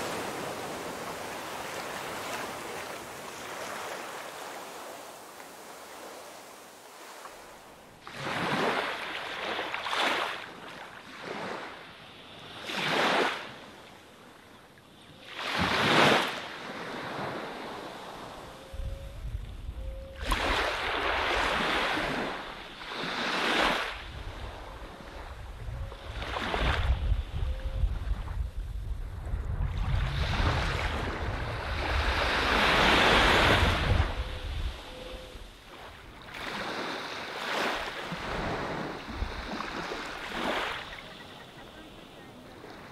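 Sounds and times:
small waves washing on sand: 0:00.0 - 0:14.0, 0:15.2 - 0:18.5, 0:20.2 - 0:27.4, 0:28.0 - 0:42.9
low wind rumble on microphone: 0:18.6 - 0:22.3, 0:23.9 - 0:36.2.

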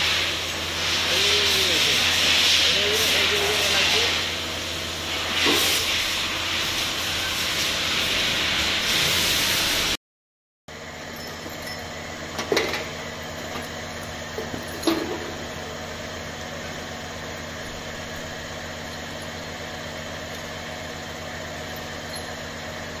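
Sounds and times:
machine hum: 0:10.7 - 0:23.0
hand tools clinking on metal: 0:11.0 - 0:15.4, 0:21.6 - 0:22.6.

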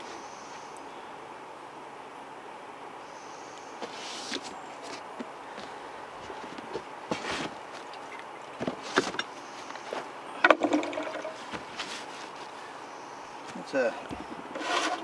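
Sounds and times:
cardboard rustling and scraping: 0:03.8 - 0:05.3, 0:06.2 - 0:07.9, 0:11.3 - 0:12.6, 0:14.2 - 0:15.0.

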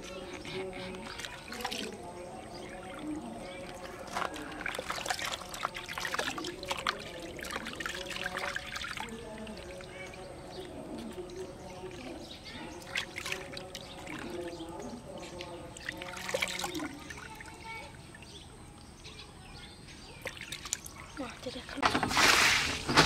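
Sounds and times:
water splashing in bath: 0:00.4 - 0:18.3, 0:20.2 - 0:21.0, 0:21.8 - 0:23.0.

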